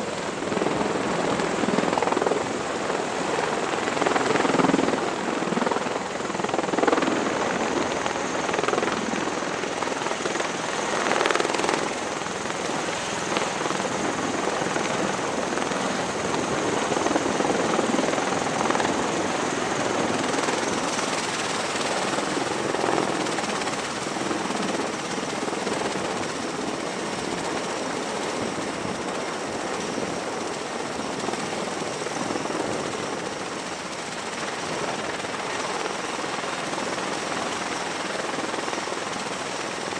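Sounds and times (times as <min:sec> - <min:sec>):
rotor and turbine roar: 0:00.0 - 0:26.2.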